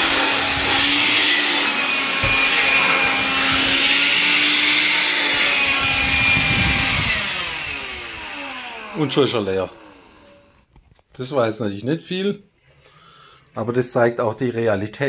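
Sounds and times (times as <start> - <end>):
cordless vacuum running: 0.0 - 10.6.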